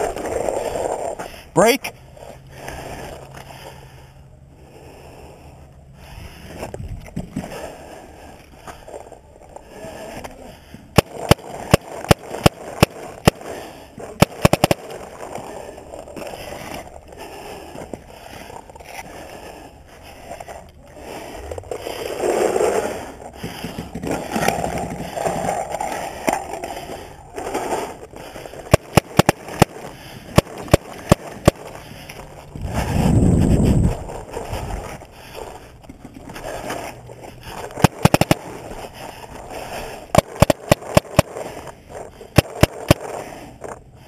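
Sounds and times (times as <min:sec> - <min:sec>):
paintball marker firing: 0:11.0 - 0:13.4, 0:14.2 - 0:14.8, 0:28.7 - 0:31.7, 0:37.8 - 0:38.5, 0:40.2 - 0:41.4, 0:42.4 - 0:43.1.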